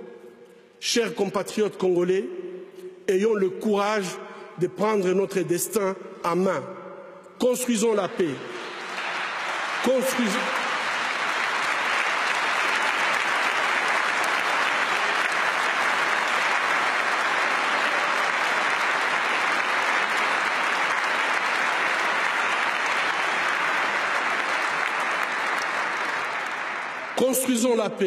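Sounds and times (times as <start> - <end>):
audience applauding: 8.5 - 28.0.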